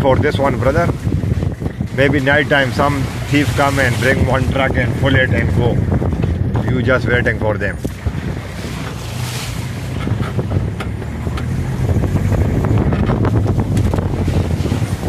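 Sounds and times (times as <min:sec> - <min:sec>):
wind buffeting microphone: 0:00.0 - 0:15.0
branches scraping vehicle: 0:00.6 - 0:05.6, 0:07.8 - 0:15.0
vehicle engine running: 0:07.8 - 0:15.0.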